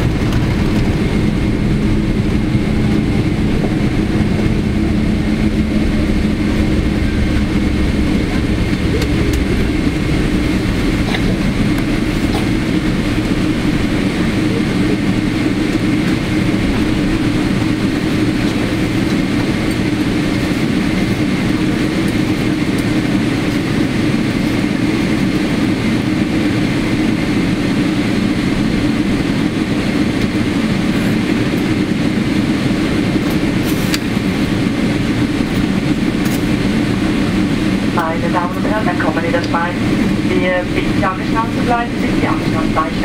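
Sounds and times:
airplane cabin rumble: 0:00.0 - 0:43.0
faint steady whine: 0:27.9 - 0:43.0.

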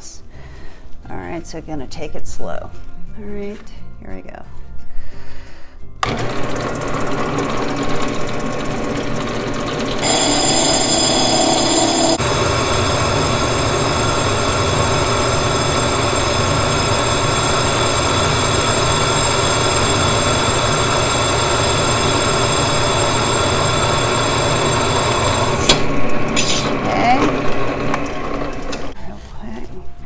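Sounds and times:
drill press grinding glass: 0:06.0 - 0:29.0.

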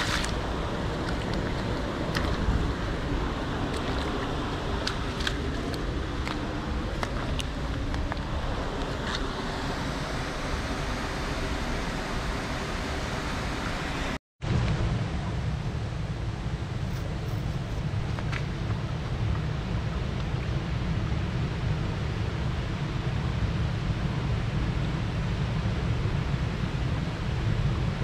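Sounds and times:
flip-flop footsteps on wet stones: 0:00.0 - 0:02.9, 0:03.6 - 0:09.3
stream water running over rocks: 0:00.0 - 0:14.0
low rumble: 0:00.0 - 0:24.5.

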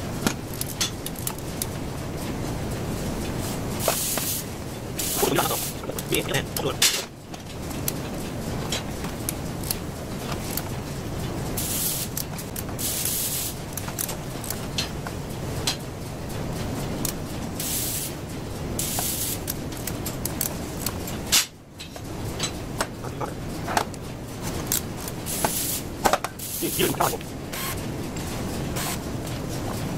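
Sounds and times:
steady noise: 0:00.0 - 0:29.9
air hiss bursts: 0:03.8 - 0:05.8, 0:11.6 - 0:12.2, 0:12.8 - 0:13.6, 0:17.6 - 0:18.2, 0:18.8 - 0:19.4, 0:25.3 - 0:27.8
air hose rubbing and clicking: 0:03.8 - 0:08.0, 0:24.6 - 0:27.8.

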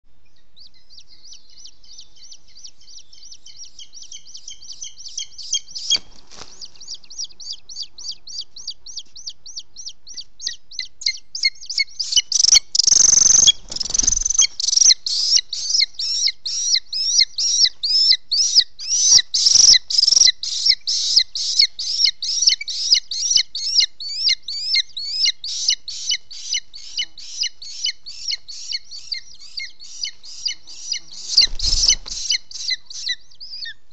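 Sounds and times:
wing flapping: 0:05.8 - 0:07.4, 0:12.2 - 0:15.8, 0:30.4 - 0:32.8
nest sticks rustling: 0:05.9 - 0:06.9.

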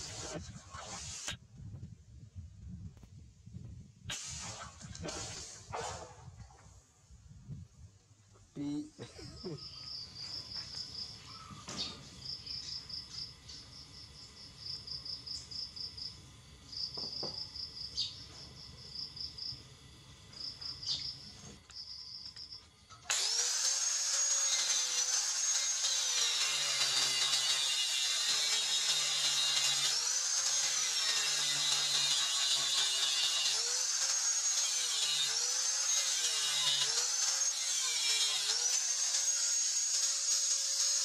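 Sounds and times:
angle grinder cutting metal: 0:00.0 - 0:01.4, 0:04.1 - 0:05.9, 0:08.7 - 0:41.0
insect chirping: 0:09.2 - 0:22.8.

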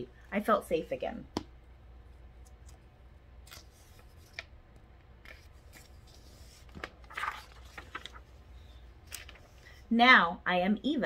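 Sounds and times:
page turning: 0:03.4 - 0:04.5, 0:05.2 - 0:08.4, 0:09.0 - 0:09.6
paper pages rustling: 0:05.2 - 0:09.7.

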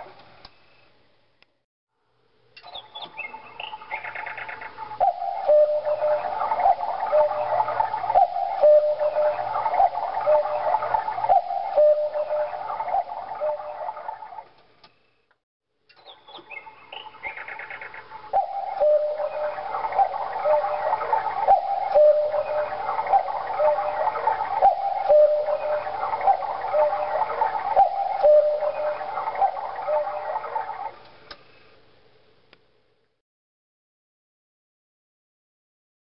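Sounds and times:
cuckoo clock call: 0:02.6 - 0:14.5, 0:15.9 - 0:31.0.

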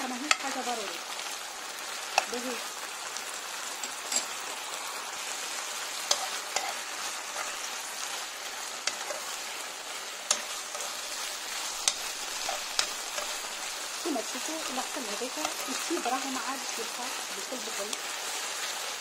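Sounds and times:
chicken sizzling in frying pan: 0:00.0 - 0:19.0
utensil clicking against pan: 0:00.2 - 0:00.6, 0:02.1 - 0:02.3, 0:06.0 - 0:07.6, 0:08.8 - 0:09.3, 0:10.2 - 0:10.9, 0:11.7 - 0:13.6.

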